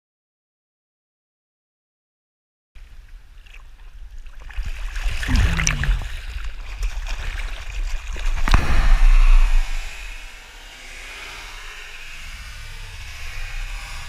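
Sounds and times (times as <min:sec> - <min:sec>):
pool water splashing: 0:02.8 - 0:10.4
sharp splash: 0:03.4 - 0:10.6
water buffeting camera housing: 0:05.2 - 0:06.5.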